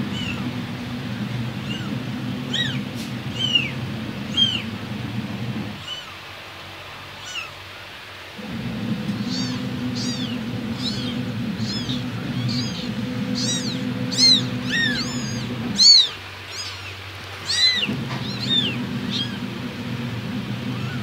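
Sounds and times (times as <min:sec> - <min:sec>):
kittens mewing: 0:00.0 - 0:00.5, 0:01.6 - 0:04.7, 0:05.7 - 0:06.2, 0:07.2 - 0:07.6, 0:09.1 - 0:19.6, 0:20.6 - 0:21.0
steady low hum: 0:00.0 - 0:07.3, 0:08.1 - 0:21.0.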